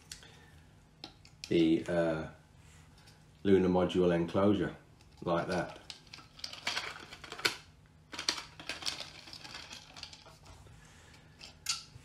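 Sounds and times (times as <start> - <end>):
plastic parts clicking: 5.5 - 10.5.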